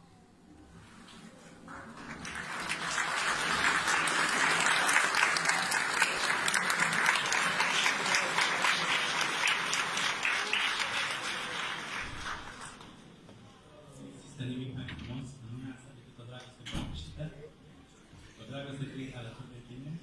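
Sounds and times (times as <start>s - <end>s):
audience applauding: 1.6s - 13.0s.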